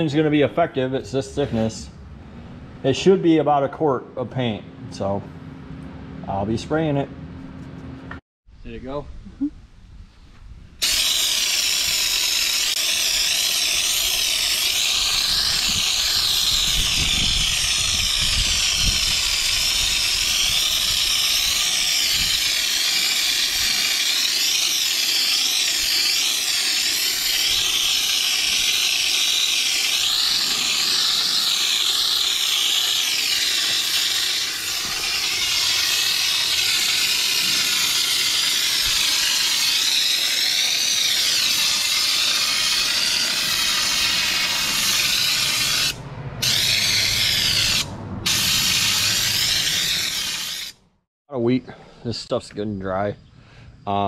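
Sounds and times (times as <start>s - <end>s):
spray gun hissing: 10.8s - 50.8s.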